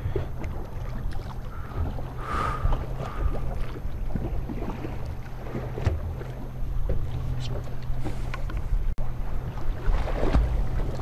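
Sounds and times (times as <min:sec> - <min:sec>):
steady low hum: 0:00.0 - 0:11.0
water sloshing against hull: 0:00.0 - 0:11.0.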